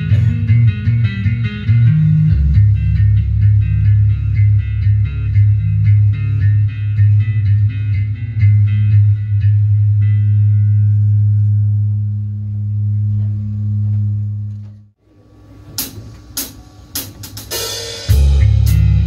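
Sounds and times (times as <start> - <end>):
electric bass note ringing: 0.0 - 14.9, 18.1 - 19.0
cymbal crashes: 15.8 - 18.8
rock band playing loudly: 17.2 - 19.0.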